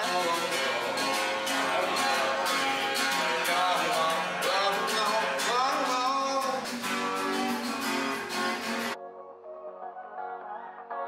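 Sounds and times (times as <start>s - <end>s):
strummed acoustic guitar music: 0.0s - 9.0s
pitch-bending melody line: 7.5s - 11.0s.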